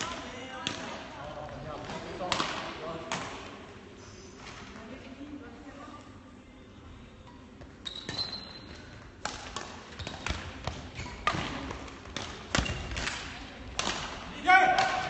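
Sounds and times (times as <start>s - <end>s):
rackets striking shuttlecock: 7.6s - 15.0s.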